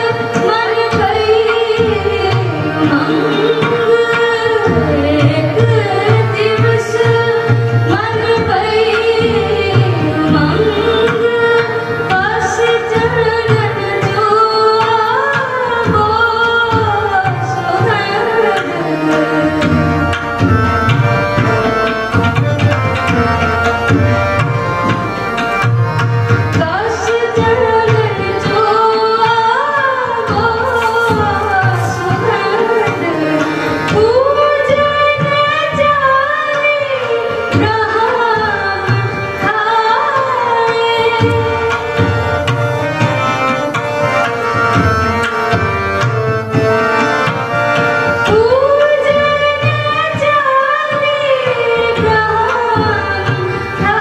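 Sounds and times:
women singing: 0:00.0 - 0:21.0, 0:26.5 - 0:42.3, 0:48.2 - 0:54.0
harmonium: 0:00.0 - 0:54.0
tabla rhythm: 0:00.0 - 0:54.0.

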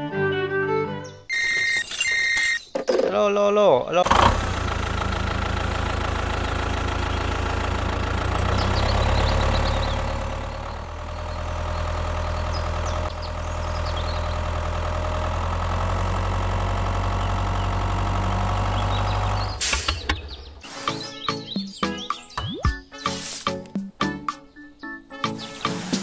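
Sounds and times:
tractor engine idling: 0:04.0 - 0:21.3.

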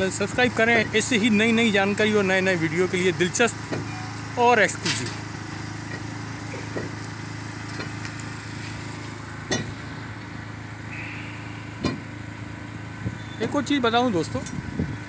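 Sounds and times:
small engine running: 0:00.0 - 0:15.0
sharp knocks: 0:11.8 - 0:12.1.

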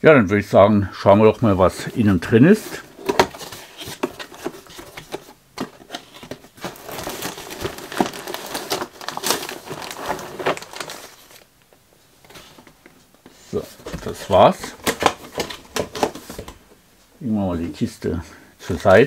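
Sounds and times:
cardboard scraping: 0:01.8 - 0:11.4
plastic bag crinkling: 0:05.9 - 0:11.5.

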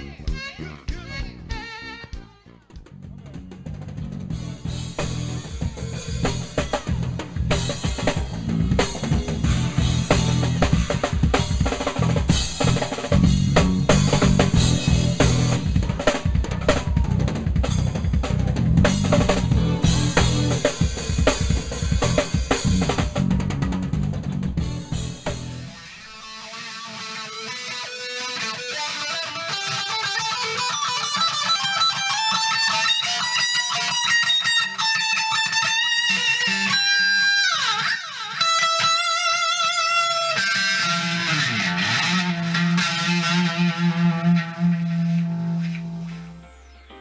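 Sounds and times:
drum kit fills and rolls: 0:00.2 - 0:26.8.

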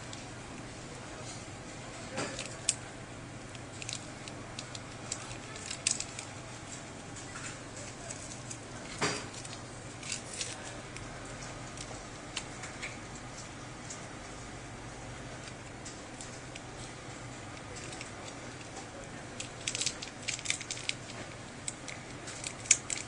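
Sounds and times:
steady low hum: 0:00.0 - 0:23.0
small clicks and crackles: 0:01.2 - 0:14.2, 0:15.2 - 0:23.0
tape peeling: 0:17.6 - 0:23.0.

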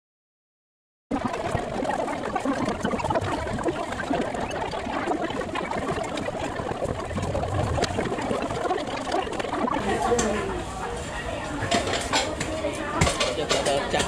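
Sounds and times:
hubbub of voices: 0:07.3 - 0:14.0.

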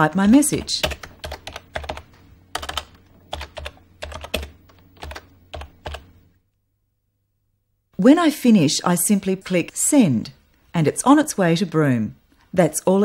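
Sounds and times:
keyboard keys clicking: 0:00.5 - 0:06.1.

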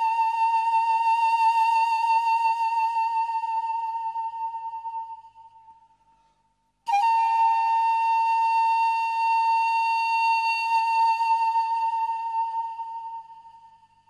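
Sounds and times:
sustained flute-like note: 0:00.0 - 0:05.6, 0:06.9 - 0:13.7.

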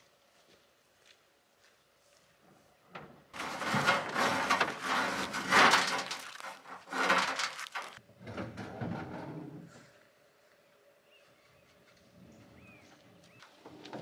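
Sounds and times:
rope rustling against sheet metal: 0:03.4 - 0:08.0.

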